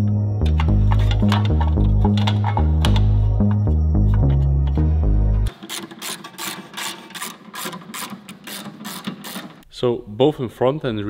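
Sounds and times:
background music: 0.0s - 5.6s.

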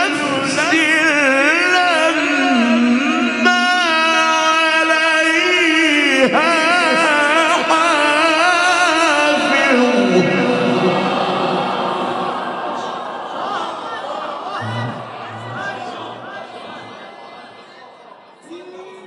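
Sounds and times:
man reciting melodically: 0.0s - 12.3s.

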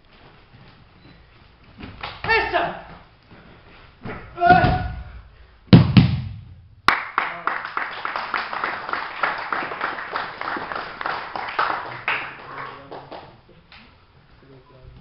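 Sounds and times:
sharp slap: 5.7s - 6.6s
people clapping: 6.8s - 13.9s.

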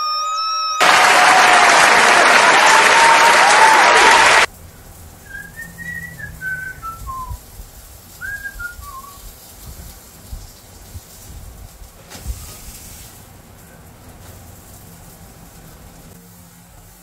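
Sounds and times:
whistled notes stepping down: 5.2s - 7.4s, 8.2s - 9.2s.

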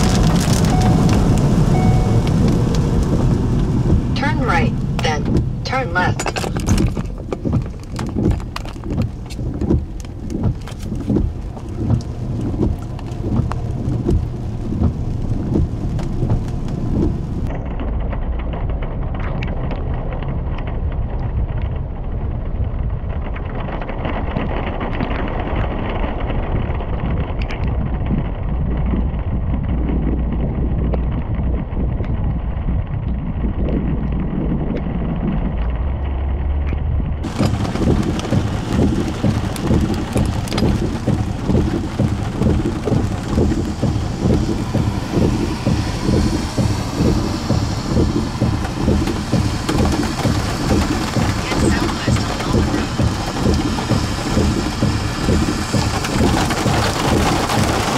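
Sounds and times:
low rumble: 0.0s - 57.9s
rain: 0.0s - 57.9s
wind noise on microphone: 0.0s - 57.9s.

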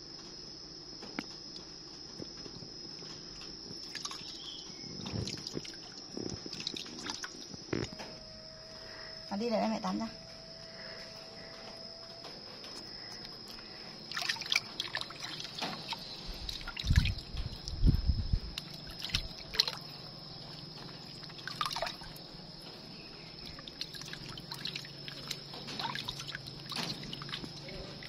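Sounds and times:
faint high whine: 0.0s - 28.0s
bath water trickling and dripping: 1.1s - 28.0s
water splashes: 13.6s - 28.0s
dull low thumps: 16.4s - 18.6s.

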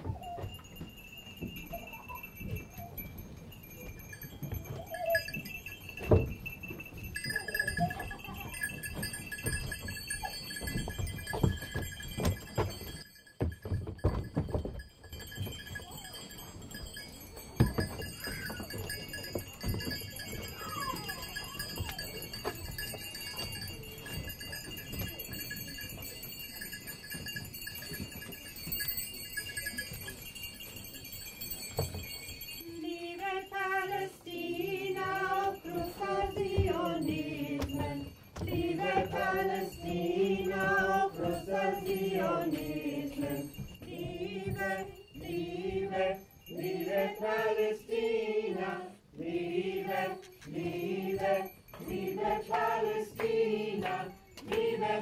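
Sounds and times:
high ringing tones: 0.2s - 34.0s
group of voices singing: 32.7s - 55.0s.

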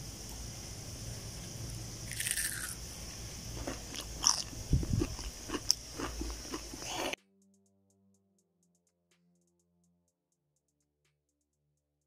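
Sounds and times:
crunching of fried food: 2.0s - 2.8s, 3.5s - 7.2s.

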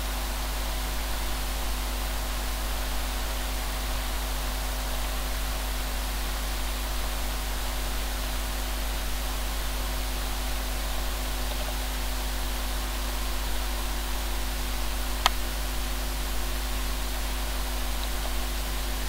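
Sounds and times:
low constant hum: 0.0s - 19.0s
static hiss: 0.0s - 19.0s.

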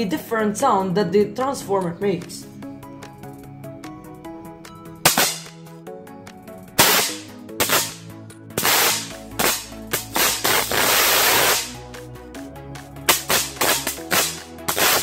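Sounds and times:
continuous electric arc: 6.8s - 8.0s, 8.6s - 11.8s, 13.1s - 15.0s
high-voltage arc cracking: 6.8s - 8.0s, 8.6s - 11.8s, 13.1s - 15.0s.

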